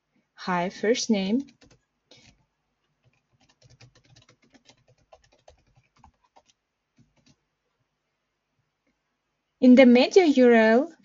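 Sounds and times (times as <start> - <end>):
faint keyboard typing: 1.3 - 7.5.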